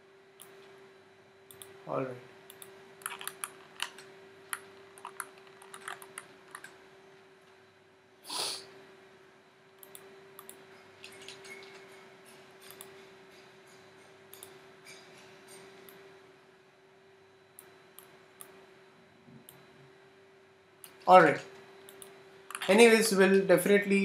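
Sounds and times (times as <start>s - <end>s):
faint steady hum: 0.0s - 24.0s
computer mouse clicks: 1.5s - 1.7s, 2.5s - 6.8s, 9.8s - 11.8s, 12.6s - 13.0s.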